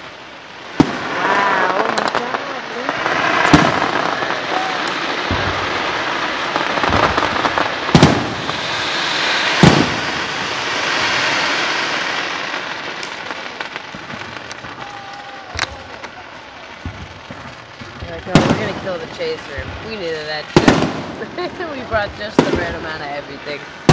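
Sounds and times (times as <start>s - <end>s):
fireworks crackle: 0.0s - 23.9s
fireworks shells bursting: 0.7s - 23.9s.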